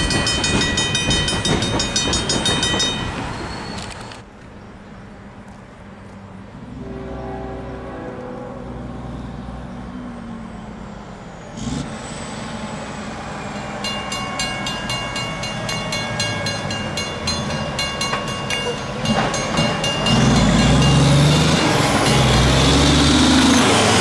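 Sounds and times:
railroad crossing bell ringing: 0.0s - 4.2s, 13.2s - 24.0s
truck engine: 7.6s - 24.0s.

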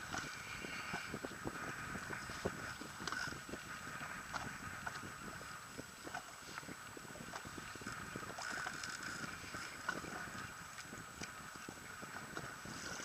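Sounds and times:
water lapping against boat: 0.0s - 13.0s
wind on microphone: 0.0s - 13.0s.

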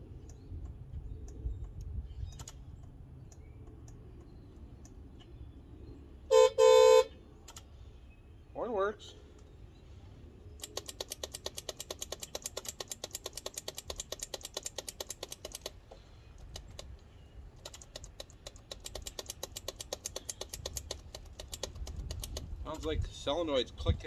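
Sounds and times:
starter solenoid rapid clicking: 10.6s - 16.9s, 17.6s - 22.5s.

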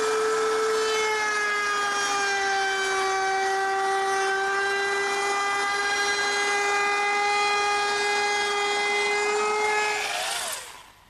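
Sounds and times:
router whining while cutting wood: 0.0s - 11.0s.

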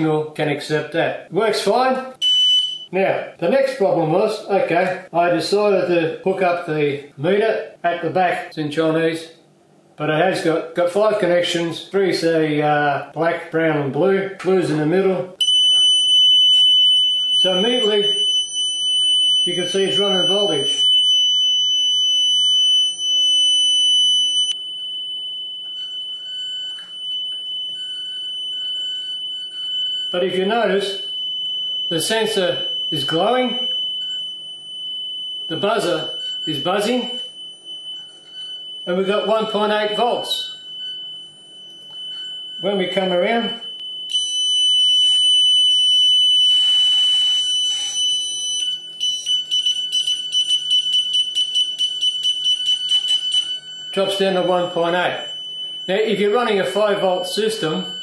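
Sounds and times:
buzzer high-pitched tone: 15.4s - 58.0s.

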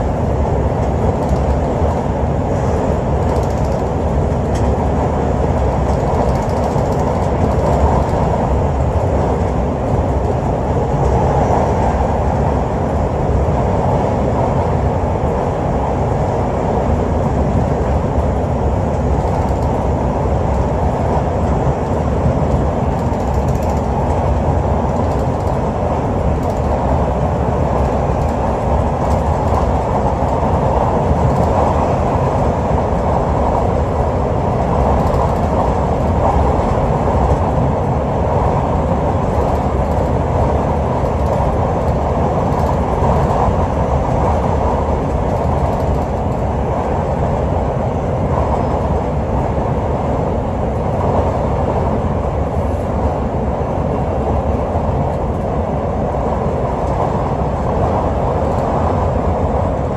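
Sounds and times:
train wheels rumbling on track: 0.0s - 59.9s.

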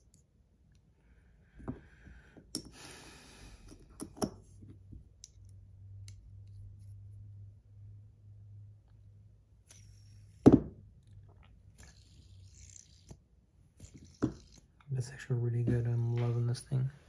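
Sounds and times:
faint low hum: 3.0s - 17.0s.

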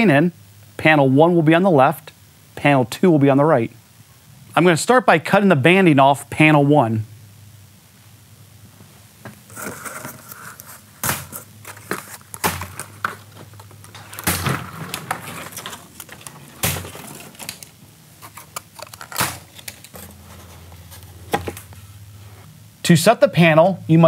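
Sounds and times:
cardboard and wood rustling and knocking: 9.4s - 21.7s
plastic banding snipping and snapping: 11.0s - 20.0s.

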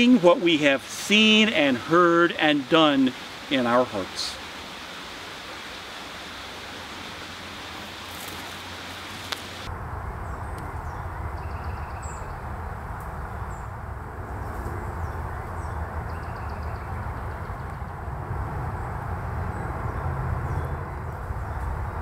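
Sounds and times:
steady hiss: 0.0s - 9.7s
small birds chirping and trilling: 9.4s - 12.5s, 14.7s - 18.0s.

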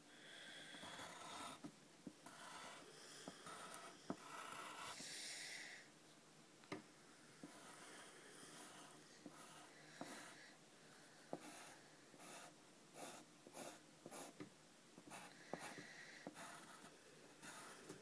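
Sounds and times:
pencil ticking on page: 0.7s - 5.0s, 8.6s - 10.4s, 15.0s - 18.0s
pencil scratching on paper: 0.7s - 5.2s, 7.4s - 14.4s, 15.0s - 18.0s.

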